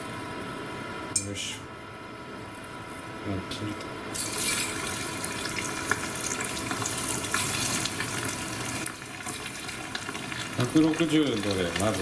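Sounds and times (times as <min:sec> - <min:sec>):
chicken deep-frying in oil: 0:04.1 - 0:12.0.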